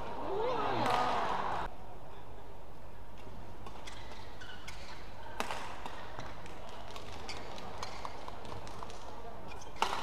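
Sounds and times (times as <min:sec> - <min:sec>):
shoes squeaking on court: 0:03.7 - 0:05.0, 0:07.2 - 0:08.1, 0:09.5 - 0:10.0.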